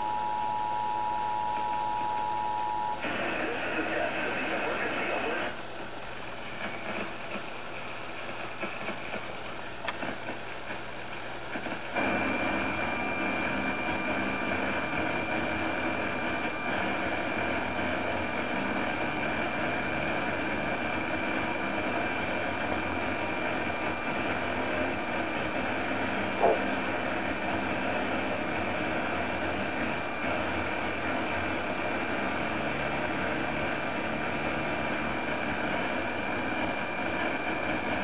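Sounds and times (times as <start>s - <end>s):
steady hiss with high whine: 0.0s - 38.0s.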